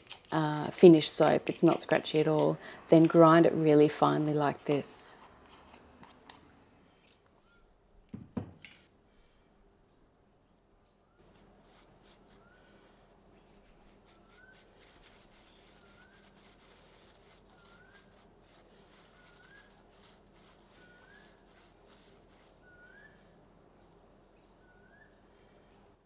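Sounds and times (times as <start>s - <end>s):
powder rubbed through a sieve: 0.0s - 6.4s, 11.2s - 23.0s.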